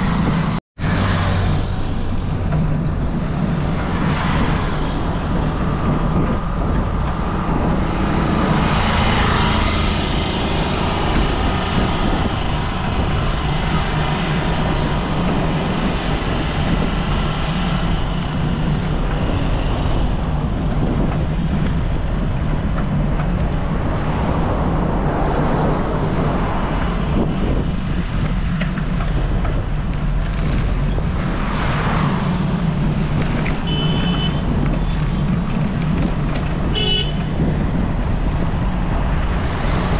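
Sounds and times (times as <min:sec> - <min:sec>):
vehicles passing: 0:00.0 - 0:39.9
wind rushing over microphone: 0:00.0 - 0:39.9
short horn beep: 0:33.6 - 0:34.4.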